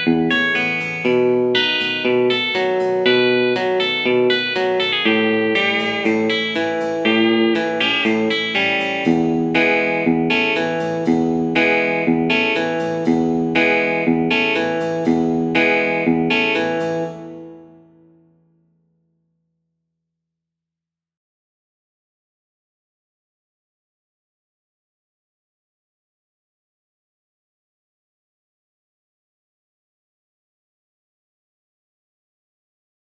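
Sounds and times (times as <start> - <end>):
guitar strumming chords: 0.0 - 17.9.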